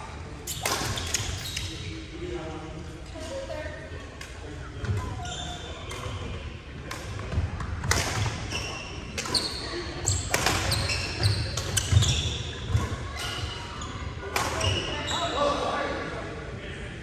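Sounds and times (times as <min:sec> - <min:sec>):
shoes squeaking on court: 0:04.8 - 0:06.3, 0:08.5 - 0:15.4
racket hitting shuttlecock: 0:06.9 - 0:08.4, 0:10.2 - 0:10.8.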